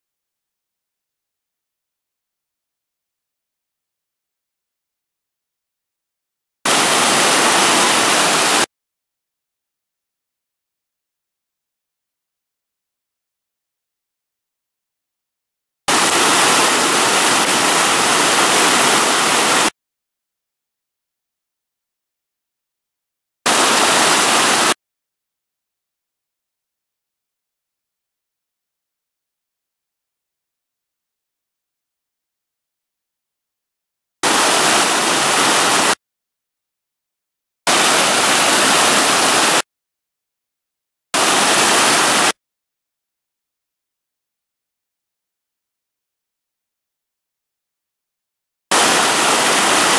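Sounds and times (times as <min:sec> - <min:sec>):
river rapids rushing: 0:06.7 - 0:08.7, 0:15.9 - 0:19.7, 0:23.5 - 0:24.8, 0:34.2 - 0:36.0, 0:37.7 - 0:39.6, 0:41.2 - 0:42.3, 0:48.7 - 0:49.9.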